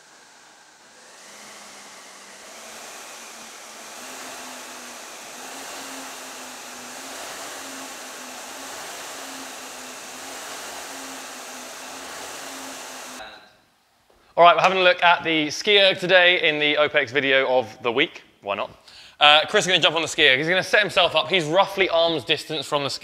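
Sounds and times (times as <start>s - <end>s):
flywheel fan whirring: 0.0s - 13.2s.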